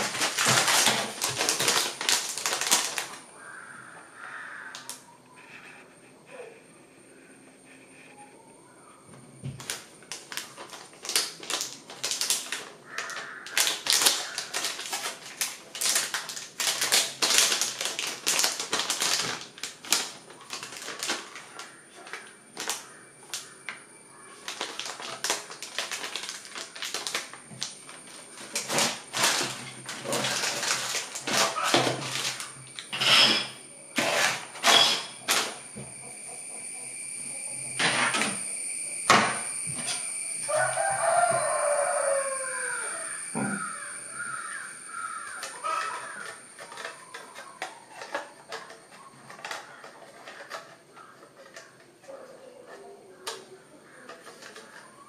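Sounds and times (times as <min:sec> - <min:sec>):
sharp crackles and clicks: 0:00.0 - 0:03.2, 0:09.6 - 0:33.0
plastic packaging crinkling: 0:00.0 - 0:05.0, 0:09.4 - 0:33.4, 0:34.0 - 0:35.8, 0:39.1 - 0:51.8, 0:53.2 - 0:55.0.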